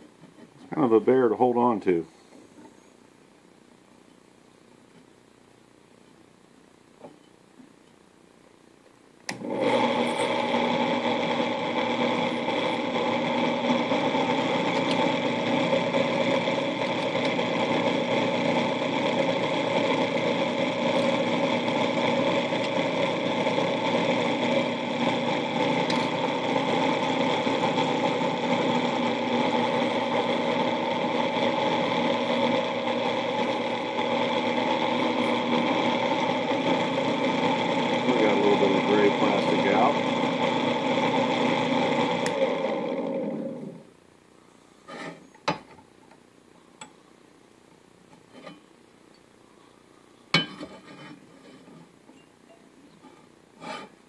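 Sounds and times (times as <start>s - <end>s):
drill press motor whining: 9.3s - 43.9s.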